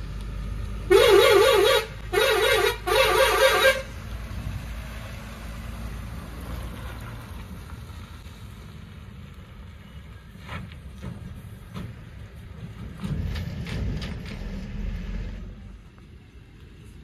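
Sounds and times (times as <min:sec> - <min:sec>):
truck engine driving past: 0:00.0 - 0:16.4
warbling truck horn blasts: 0:00.9 - 0:03.9.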